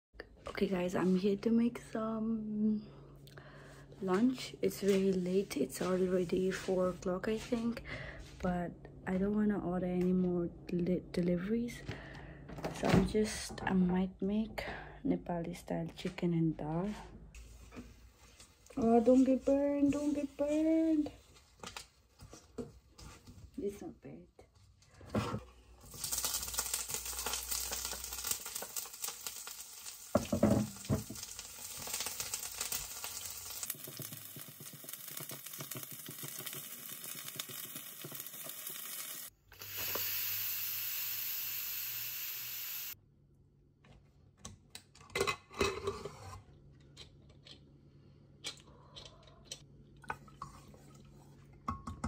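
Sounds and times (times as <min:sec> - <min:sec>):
food sizzling in a pot: 0:25.8 - 0:43.0
wooden spoon stirring: 0:30.2 - 0:39.2.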